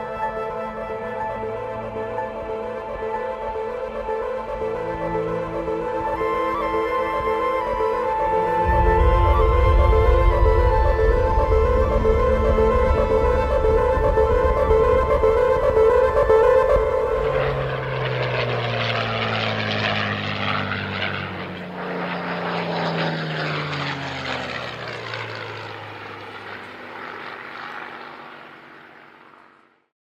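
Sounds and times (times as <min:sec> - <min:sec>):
music: 0:00.0 - 0:18.4
propeller airplane flying past: 0:00.0 - 0:29.9.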